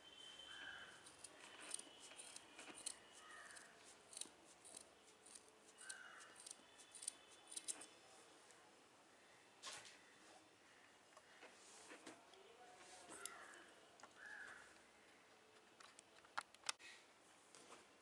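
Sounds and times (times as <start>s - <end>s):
scissors snipping cord: 1.0s - 7.9s.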